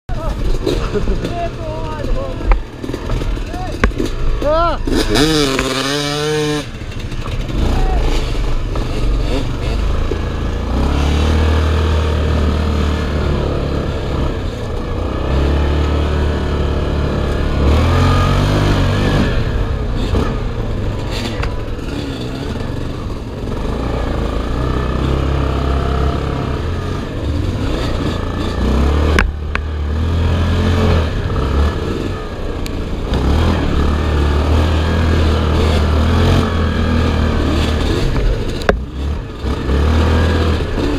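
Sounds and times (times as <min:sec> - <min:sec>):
quad engine revving: 0:00.1 - 0:40.9.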